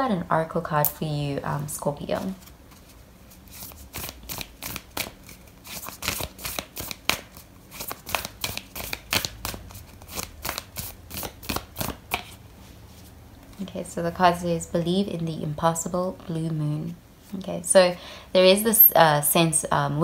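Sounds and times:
cards being shuffled: 0:02.2 - 0:12.4.

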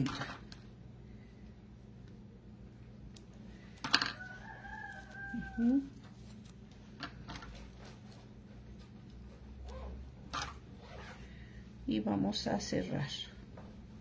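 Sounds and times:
rooster crowing: 0:04.0 - 0:06.0.

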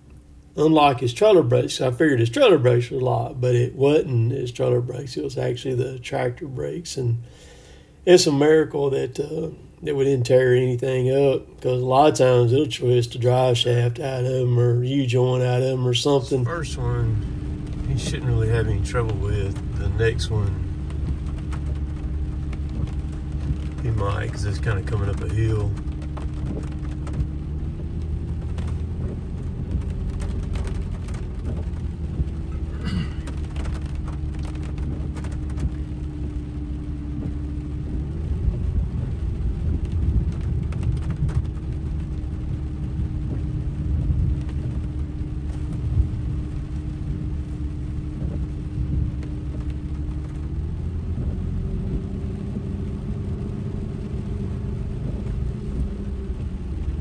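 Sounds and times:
road noise: 0:00.0 - 0:57.0
truck engine rumble: 0:00.0 - 0:57.0.

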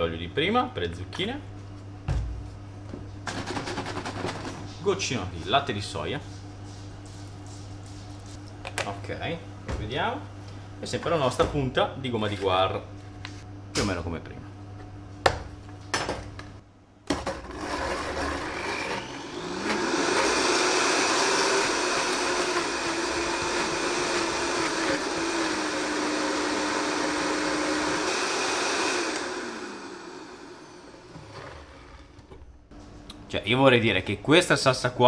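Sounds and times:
blender motor running: 0:17.2 - 0:32.2.

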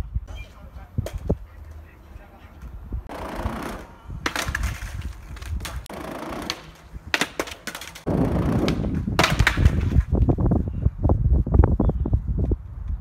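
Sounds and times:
skateboard wheels rolling on concrete: 0:00.0 - 0:13.0
skateboard clacks: 0:03.1 - 0:10.1
skateboard clattering: 0:03.1 - 0:10.1
skateboard pop and landing impacts: 0:03.7 - 0:10.2.

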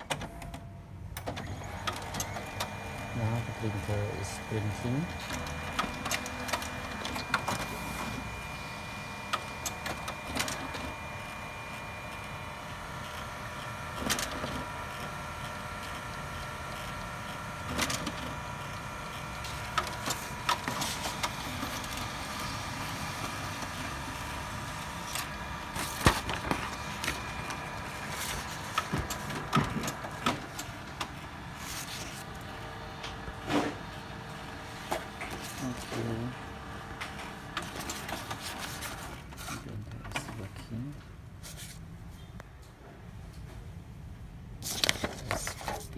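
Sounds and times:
printer motors whirring: 0:00.0 - 0:41.0
printer paper path clicks: 0:01.2 - 0:36.2, 0:36.8 - 0:40.5.

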